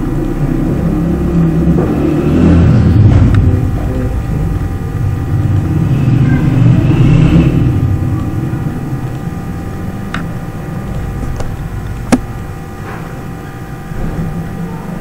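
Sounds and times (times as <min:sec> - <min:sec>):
low rumble and electrical hum: 0:00.0 - 0:15.0.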